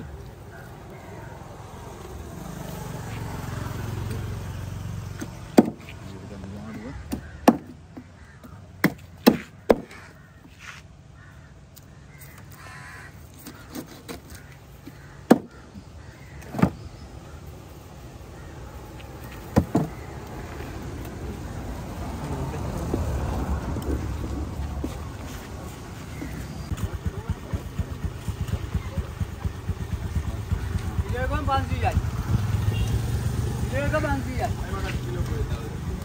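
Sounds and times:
cleaver chopping onto stone slab: 8.8 - 10.0.

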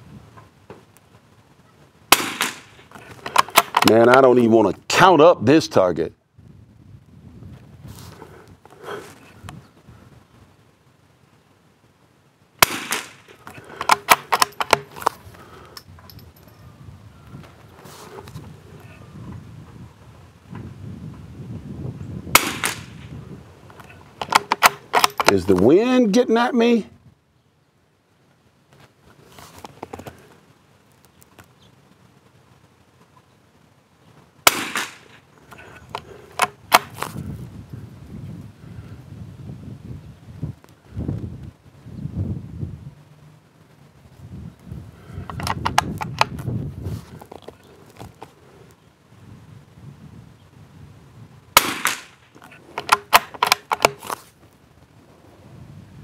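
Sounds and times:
rifle shot: 2.1 - 4.0, 12.6 - 14.9, 22.3 - 23.1, 34.4 - 35.2, 51.6 - 52.2
rifle bolt metallic clicks: 2.1 - 4.2, 12.6 - 15.1, 24.2 - 25.7, 51.6 - 54.2
rifle bolt clicking: 3.2 - 4.0, 13.8 - 15.1, 52.8 - 54.2.

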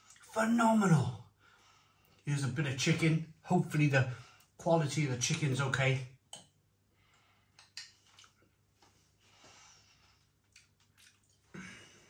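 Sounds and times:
person chewing: 7.6 - 8.5, 10.2 - 11.6
soft breath: 8.9 - 10.4.

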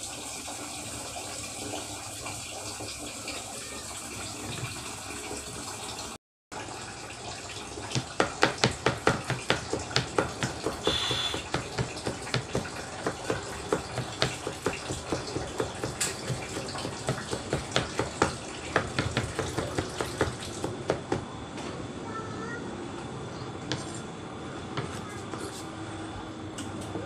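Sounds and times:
knife chopping on cutting board: 8.0 - 21.0.

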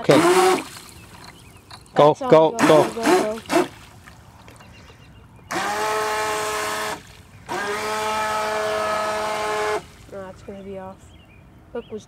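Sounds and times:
electric motor whining: 0.0 - 0.9, 2.6 - 3.7, 5.5 - 9.9.

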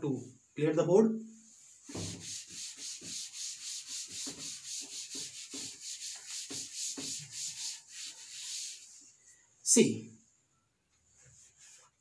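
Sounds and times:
cloth wiping blackboard: 1.5 - 9.2, 11.1 - 12.0.

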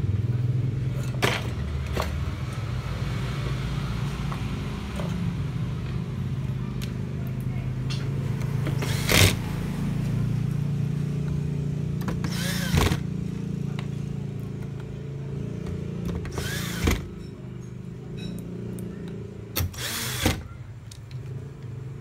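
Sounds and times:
electric screwdriver whine: 16.4 - 16.9.

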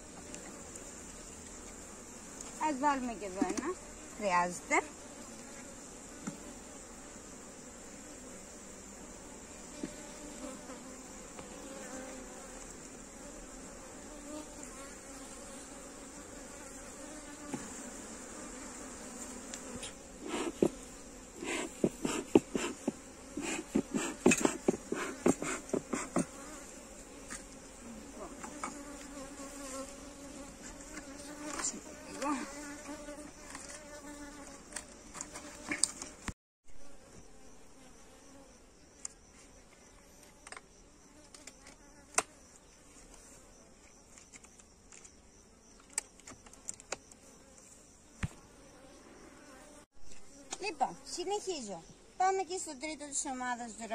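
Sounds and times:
bees buzzing: 0.0 - 53.9
hive equipment knocking: 21.7 - 26.4.

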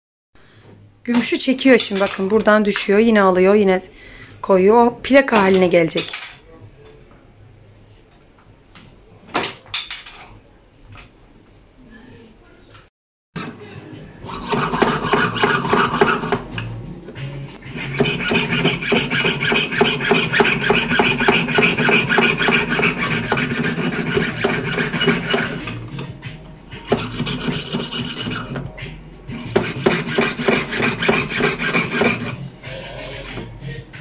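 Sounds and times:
saw cutting metal: 14.2 - 16.6, 17.6 - 25.9, 26.8 - 28.6, 29.3 - 33.1.

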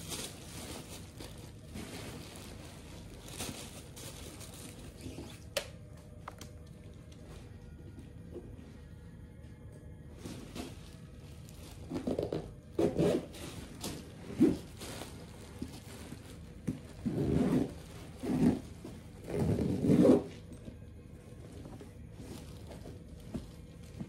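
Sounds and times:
backpack fabric rubbing and scraping: 11.8 - 14.7, 16.9 - 20.4.

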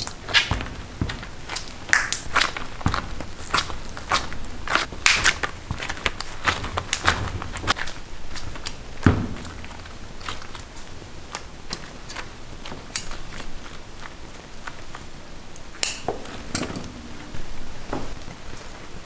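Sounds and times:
heavy thump: 0.4 - 7.8, 9.0 - 9.8.

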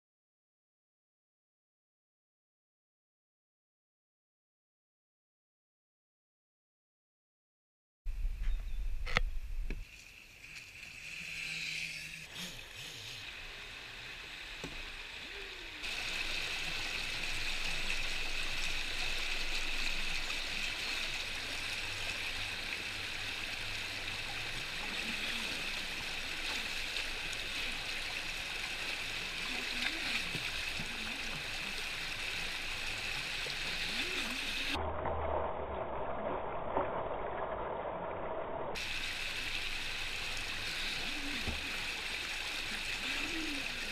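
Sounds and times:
water rushing over rapids: 12.6 - 37.6, 38.8 - 43.9
low rumble: 34.8 - 38.8.

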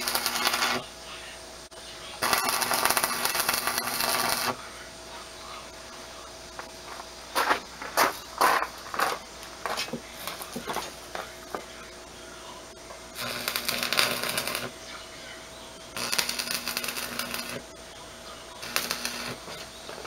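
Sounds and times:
arc welding crackle: 0.0 - 0.9, 2.2 - 4.6, 6.5 - 11.6, 13.1 - 14.9, 15.9 - 17.8, 18.5 - 20.0
low electrical hum: 0.0 - 20.0.

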